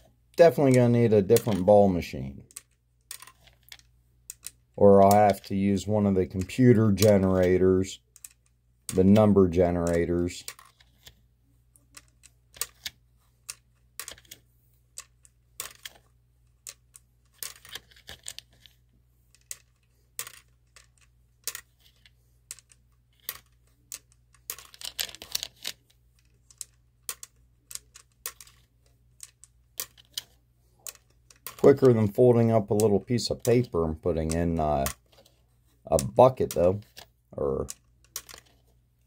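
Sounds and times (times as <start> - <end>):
plastic balls clattering in wire cage: 19.4 - 25.8.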